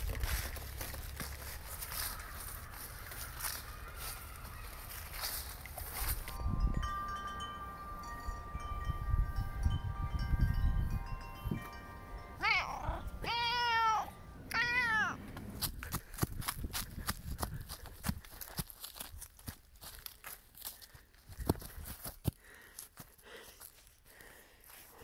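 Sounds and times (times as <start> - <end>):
ringing tones: 1.5 - 14.5
cat meowing: 12.4 - 15.2.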